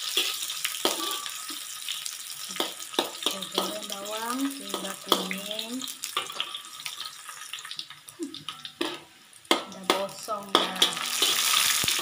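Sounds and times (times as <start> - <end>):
onions sizzling in oil: 0.0 - 12.0
metal spatula scraping a wok: 0.1 - 1.4, 8.8 - 9.1, 9.9 - 12.0.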